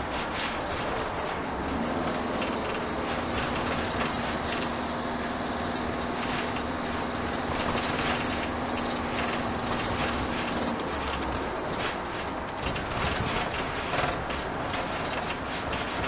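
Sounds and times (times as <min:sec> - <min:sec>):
engine hum: 0:00.0 - 0:16.0
light knocks and rattles: 0:00.0 - 0:16.0
road noise: 0:00.0 - 0:16.0.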